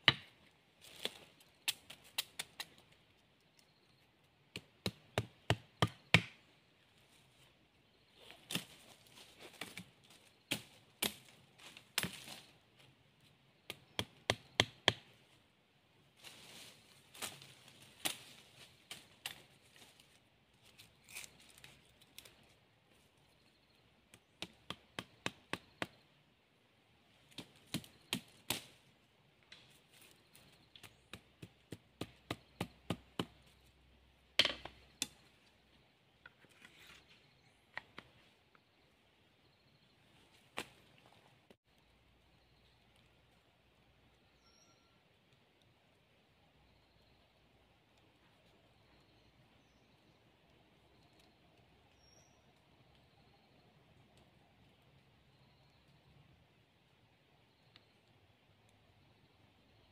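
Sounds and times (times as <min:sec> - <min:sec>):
machete chopping wooden stakes: 0:00.0 - 0:02.7, 0:04.5 - 0:06.4, 0:10.5 - 0:12.4, 0:13.7 - 0:15.1, 0:24.2 - 0:26.0, 0:27.3 - 0:28.8, 0:30.8 - 0:33.5, 0:34.4 - 0:35.3.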